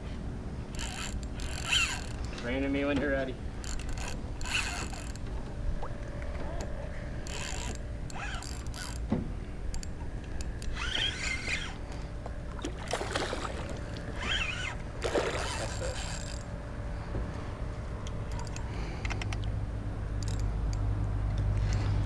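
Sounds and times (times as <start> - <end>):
fishing reel whirring and clicking: 0.7 - 2.4, 3.6 - 5.2, 7.2 - 9.1, 9.7 - 11.9, 13.8 - 16.6, 20.2 - 20.8
fish splashing at surface: 12.6 - 13.8.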